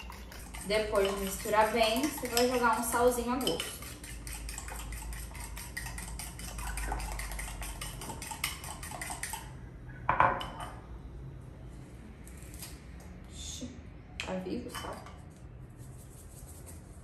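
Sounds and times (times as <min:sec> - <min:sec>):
fork beating eggs in bowl: 0:00.0 - 0:09.6.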